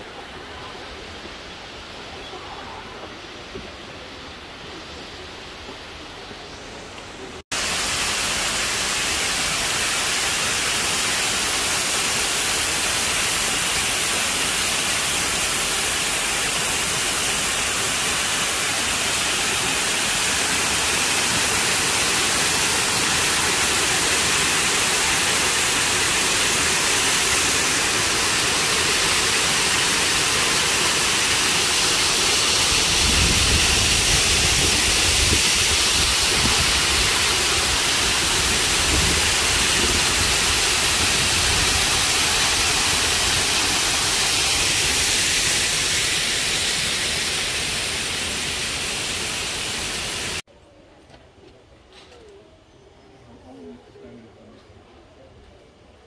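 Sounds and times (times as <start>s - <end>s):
waterfall cascading onto rocks: 7.5s - 50.4s.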